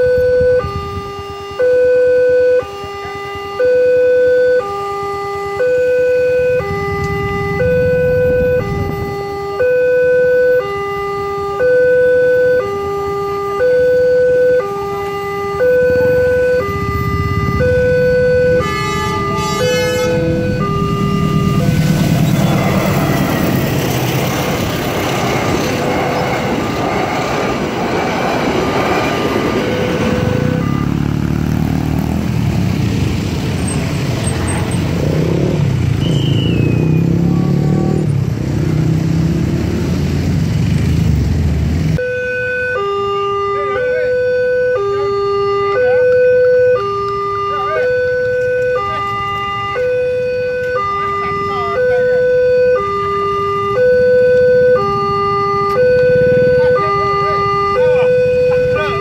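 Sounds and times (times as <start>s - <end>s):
level crossing two-tone alarm: 0.0s - 23.7s, 28.6s - 31.0s, 42.0s - 59.0s
low uneven engine rumble: 14.7s - 35.0s
passenger train passing: 14.7s - 36.0s.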